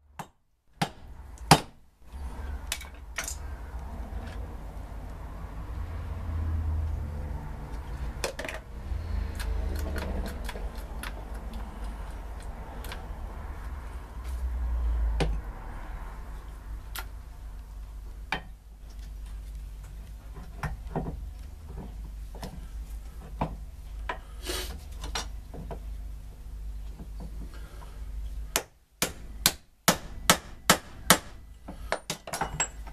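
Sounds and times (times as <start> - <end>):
metal clinks and knocks: 31.9 - 32.9.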